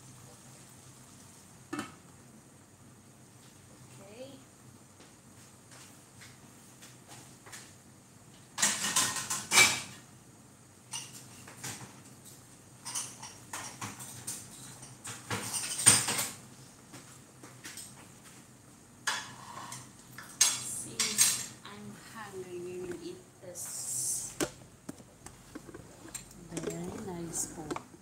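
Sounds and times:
dishes and cutlery clattering: 0:08.6 - 0:09.9, 0:12.8 - 0:16.4.

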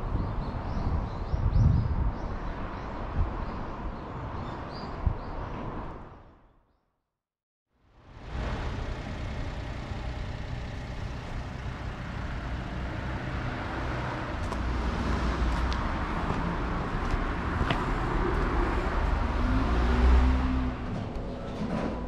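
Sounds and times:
road traffic engine rumble: 0:07.8 - 0:22.0.

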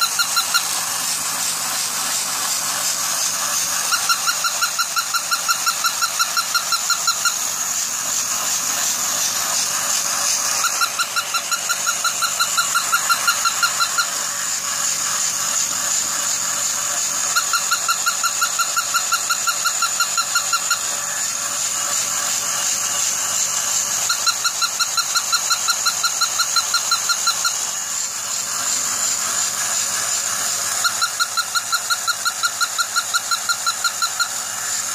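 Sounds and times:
high electronic yips: 0:00.0 - 0:00.8, 0:03.2 - 0:14.5, 0:30.2 - 0:34.9
toy motor whirring: 0:00.0 - 0:34.9.

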